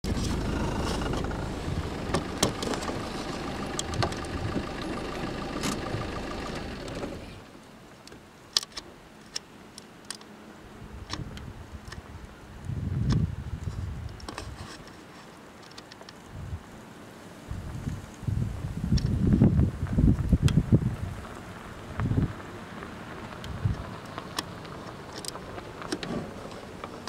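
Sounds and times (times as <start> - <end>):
vehicle engine running: 0.0 - 7.5, 19.3 - 27.0.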